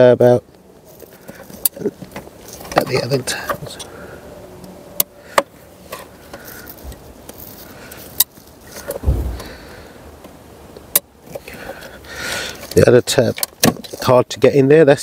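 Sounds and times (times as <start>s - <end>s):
dull thump: 9.0s - 9.7s.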